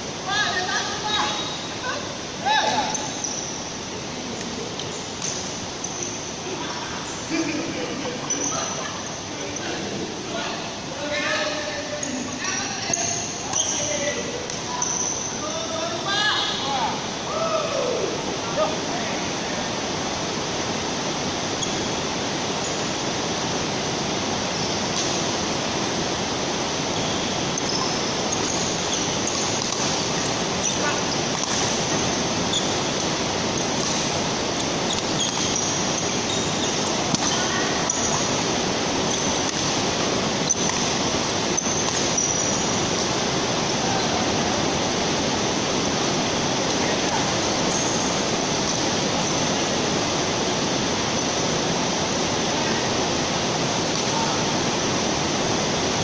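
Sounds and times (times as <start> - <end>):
indoor hall rushing noise: 0.0 - 56.0
shoe squeaks on court: 2.9 - 3.6, 12.9 - 13.9, 21.6 - 21.9, 27.6 - 31.6, 32.5 - 32.8, 34.9 - 38.4, 41.6 - 42.6
racket hitting shuttlecock: 29.3 - 30.0, 31.3 - 31.8.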